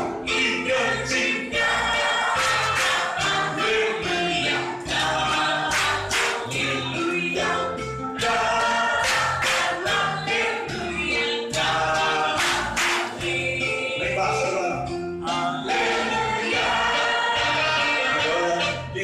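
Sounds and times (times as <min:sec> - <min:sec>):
group singing: 0:00.0 - 0:19.0
instrumental backing with beat: 0:00.0 - 0:19.0
lead voice through microphone: 0:18.0 - 0:19.0.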